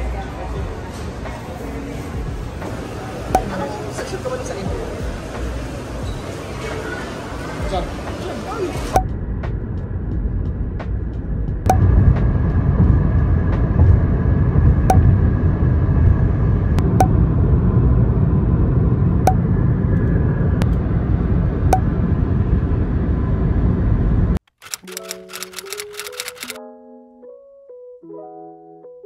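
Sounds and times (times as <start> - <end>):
car road and wind noise: 7.5 - 24.4
short sharp clicks: 24.5 - 26.6.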